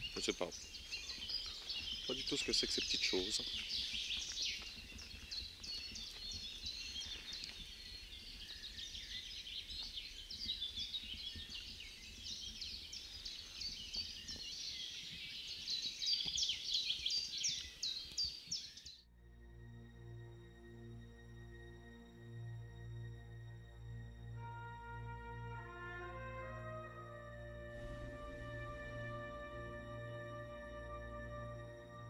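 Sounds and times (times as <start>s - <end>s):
soft ambient music: 0.0s - 14.8s, 17.1s - 32.0s
songbirds chirping and trilling: 0.0s - 19.1s.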